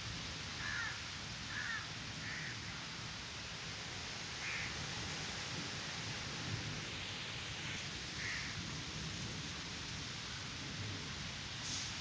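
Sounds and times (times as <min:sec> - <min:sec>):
steady background hiss: 0:00.0 - 0:12.0
crow cawing: 0:00.6 - 0:02.7, 0:04.4 - 0:04.7, 0:08.2 - 0:08.6.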